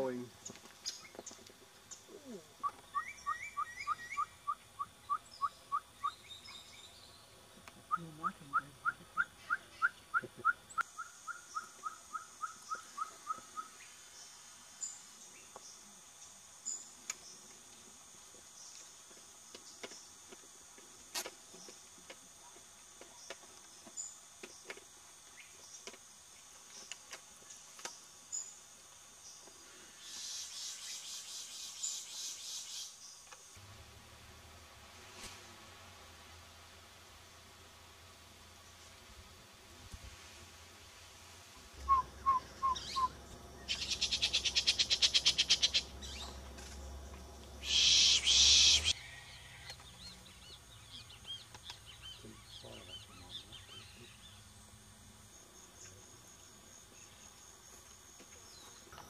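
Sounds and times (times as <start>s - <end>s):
bird calling in repeated notes: 2.6s - 6.4s, 41.8s - 46.4s, 47.6s - 49.0s.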